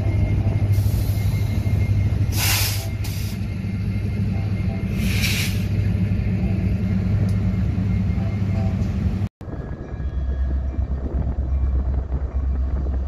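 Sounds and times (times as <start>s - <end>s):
freight train rumbling past: 0.0s - 13.0s.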